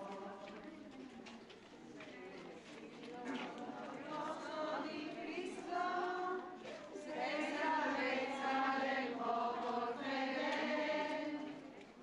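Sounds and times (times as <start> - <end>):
group singing a hymn: 3.2 - 11.7.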